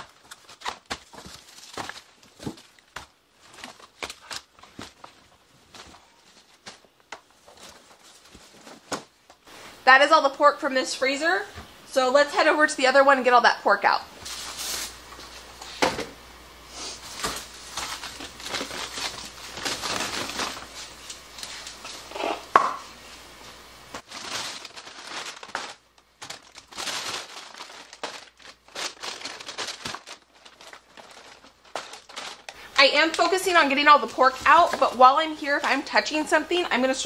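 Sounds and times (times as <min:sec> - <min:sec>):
frozen packs knocking: 0:00.0 - 0:09.2, 0:17.1 - 0:20.8, 0:23.9 - 0:35.9
plastic wrap crinkling: 0:00.0 - 0:09.3, 0:14.2 - 0:15.5, 0:16.8 - 0:22.6, 0:23.8 - 0:37.0.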